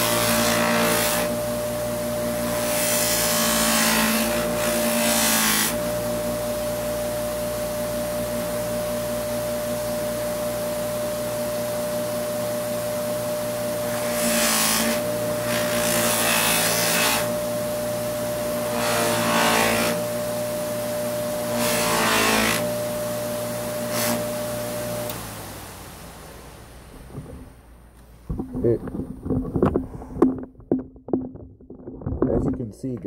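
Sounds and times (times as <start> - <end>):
wood rubbing on buffing wheel: 0.0 - 1.7, 2.4 - 5.9, 13.7 - 20.3, 21.2 - 22.8, 26.9 - 33.0
buffer motor humming: 0.0 - 33.0.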